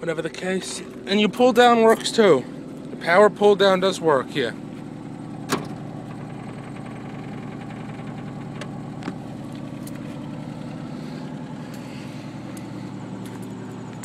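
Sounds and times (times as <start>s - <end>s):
car engine idling: 0.0s - 14.0s.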